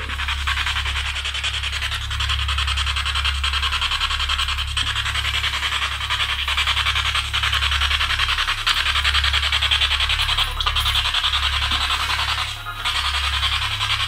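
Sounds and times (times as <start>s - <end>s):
pulsing static hiss: 0.0s - 2.8s
low hum: 0.0s - 8.7s.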